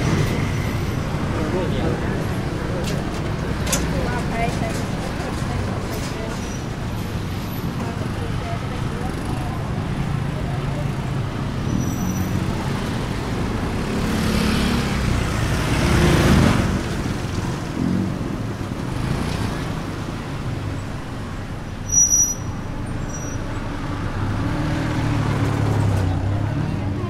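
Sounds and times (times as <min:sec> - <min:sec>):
vehicle engines running: 0:00.0 - 0:27.0
vehicle passing by: 0:12.4 - 0:19.7.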